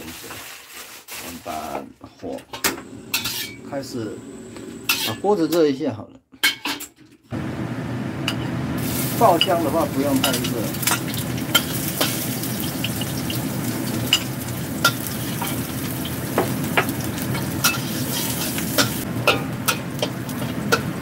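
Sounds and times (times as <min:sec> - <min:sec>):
metal ladle scraping wok: 0:02.5 - 0:03.6, 0:04.7 - 0:05.3, 0:10.2 - 0:13.3, 0:17.3 - 0:21.0
onion sizzling in oil: 0:08.8 - 0:21.0.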